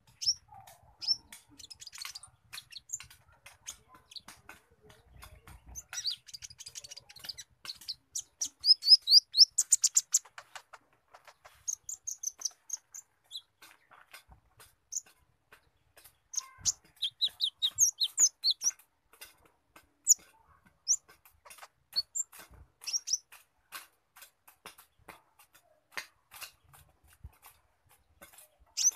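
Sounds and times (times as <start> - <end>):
bird chirping: 0.0 - 19.2, 20.0 - 23.4, 28.4 - 28.9
bird dry ticking notes: 0.0 - 24.9.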